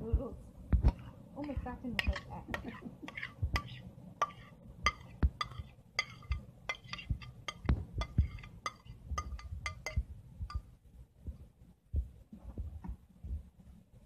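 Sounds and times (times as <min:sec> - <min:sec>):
metal spoon scraping a plate: 0:02.0 - 0:10.6.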